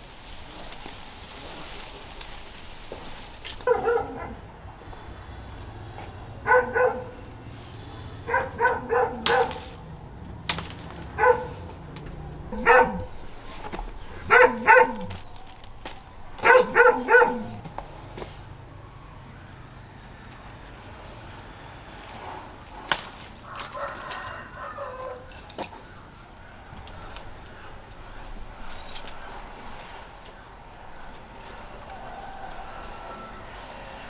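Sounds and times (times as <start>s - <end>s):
dog barking: 3.6s - 4.4s, 6.4s - 7.2s, 8.2s - 9.6s, 11.1s - 11.6s, 12.5s - 13.2s, 14.2s - 15.2s, 16.4s - 17.6s.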